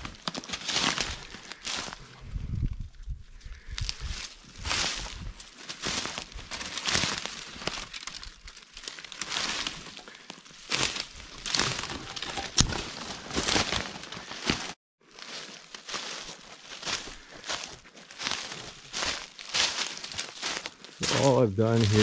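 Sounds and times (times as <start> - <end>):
footsteps crunching dry leaves: 0.0 - 2.0, 3.6 - 22.0
twig cracking: 6.5 - 14.6.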